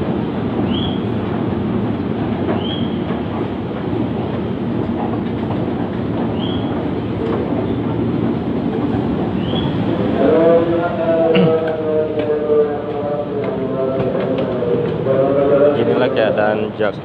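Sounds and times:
train rumbling: 0.0s - 17.0s.

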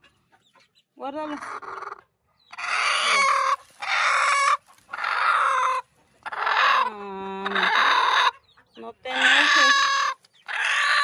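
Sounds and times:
hen giving harsh raspy calls: 1.2s - 11.0s.

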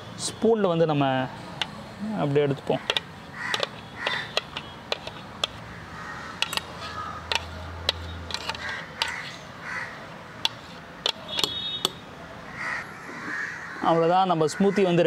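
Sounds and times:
crows cawing: 2.7s - 4.5s, 5.7s - 7.5s, 8.5s - 10.2s, 12.4s - 15.0s
spoon scraping a jar: 2.8s - 5.6s, 6.4s - 9.5s, 10.4s - 12.0s.

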